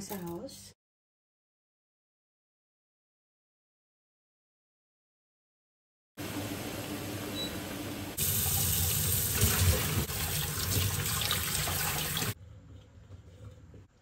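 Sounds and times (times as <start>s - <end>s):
water pouring through strainer: 8.2s - 12.4s.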